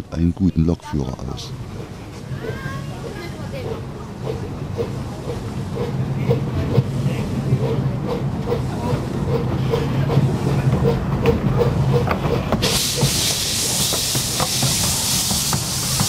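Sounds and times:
steam locomotive rumbling: 0:01.4 - 0:16.0
loud steam hiss: 0:12.6 - 0:16.0.

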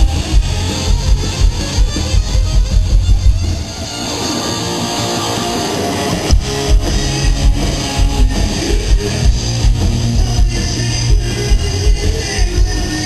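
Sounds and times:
distorted electric guitar: 0:00.0 - 0:13.0
hard rock band playing: 0:00.0 - 0:13.0.

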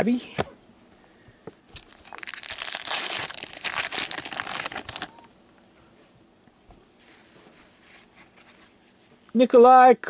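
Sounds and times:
plastic wrapper crinkling: 0:01.7 - 0:05.3.

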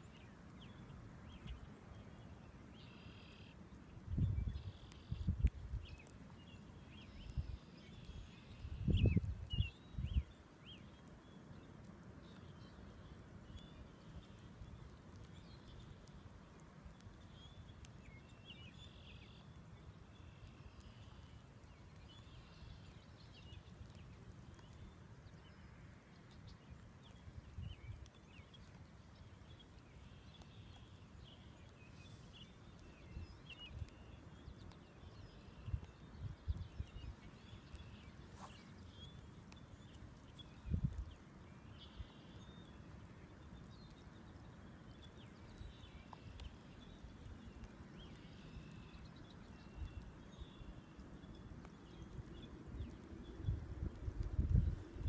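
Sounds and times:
wind rumble on microphone: 0:04.0 - 0:06.1, 0:07.2 - 0:10.4, 0:27.2 - 0:28.2, 0:32.7 - 0:39.1, 0:40.4 - 0:41.2, 0:51.4 - 0:55.0.

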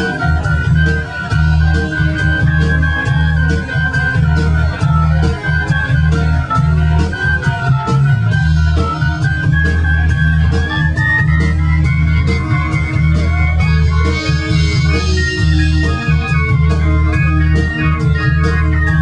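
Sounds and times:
held keyboard chords: 0:00.0 - 0:19.0
sharp percussion beat: 0:00.0 - 0:19.0
steady low bass: 0:00.0 - 0:19.0.

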